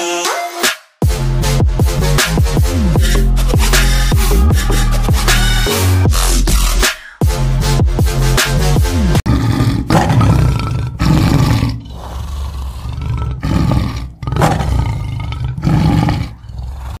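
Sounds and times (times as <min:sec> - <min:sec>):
electronic music: 0:00.0 - 0:09.2
tiger roaring and growling: 0:09.2 - 0:17.0.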